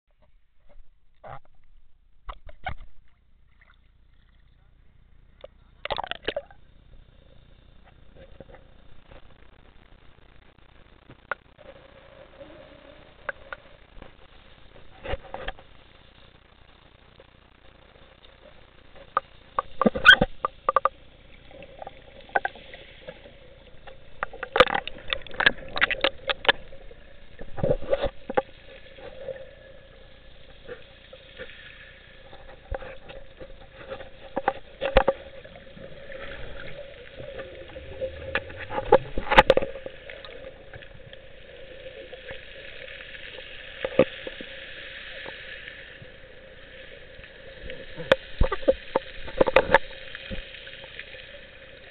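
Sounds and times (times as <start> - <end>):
sharp clicks and knocks underwater: 0.1 - 4.5, 5.3 - 6.7, 7.7 - 12.0, 13.1 - 46.2, 47.2 - 51.9
faint steady hum: 0.1 - 51.9
soft hiss: 0.2 - 51.9.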